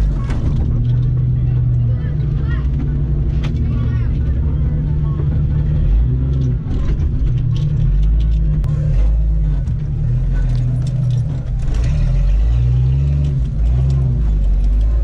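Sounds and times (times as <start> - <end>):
rattles and knocks of vehicle body: 0.0 - 8.8
engine running under load: 0.0 - 15.0.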